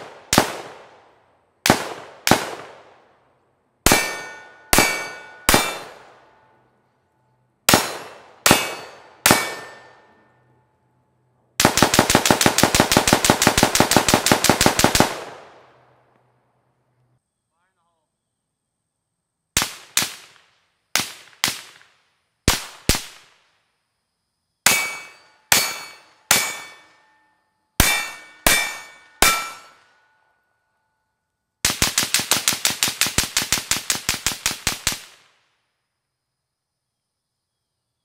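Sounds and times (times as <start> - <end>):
suppressed rifle shots: 3.8 - 6.2, 7.7 - 10.0
metallic ring of steel targets: 3.9 - 6.7, 7.7 - 11.1, 24.6 - 31.1.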